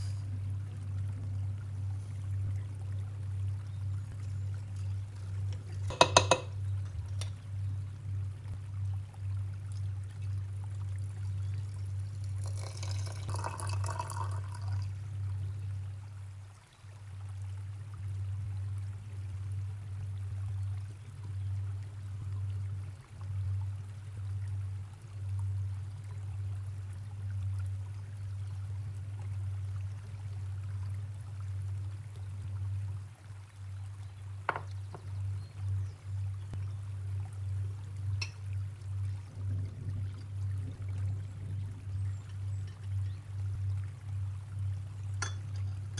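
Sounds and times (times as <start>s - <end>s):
low hum: 0.0s - 45.9s
hot water pouring and splashing: 1.7s - 7.6s, 9.4s - 15.3s, 41.9s - 45.9s.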